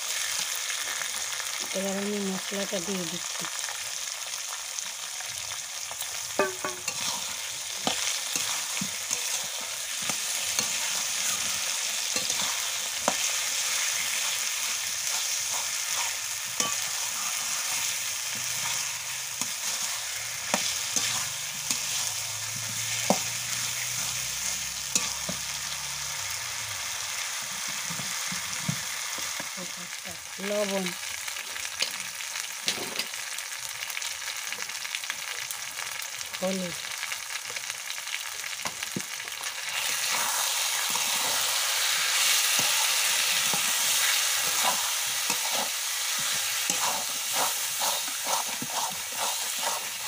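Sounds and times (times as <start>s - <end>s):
food sizzling in hot oil: 0.0s - 50.0s
metal spatula scraping pan: 6.4s - 25.8s, 42.5s - 50.0s.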